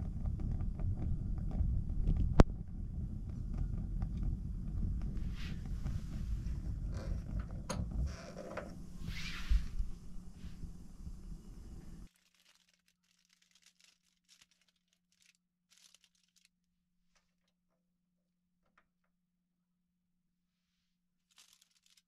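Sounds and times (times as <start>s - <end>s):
low hum: 0.0s - 12.1s
low rumbling noise: 0.0s - 12.1s
rustles and knocks: 0.0s - 12.1s
faint ticks and crinkles: 0.0s - 17.8s, 21.3s - 22.0s.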